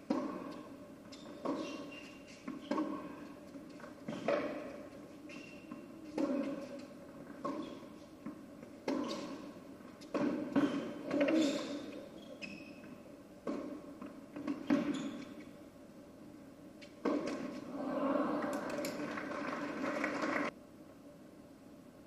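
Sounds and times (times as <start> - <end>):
tennis ball struck by rackets: 0.0 - 0.6, 10.0 - 11.8, 13.4 - 14.9, 17.0 - 17.6
tennis ball bouncing on court: 0.0 - 5.0, 5.6 - 12.0, 13.4 - 15.4, 16.8 - 17.6.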